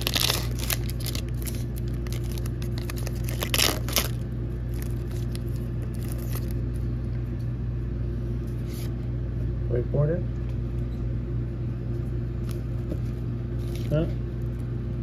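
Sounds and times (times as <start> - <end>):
foil wrapper tearing and crinkling: 0.0 - 6.7.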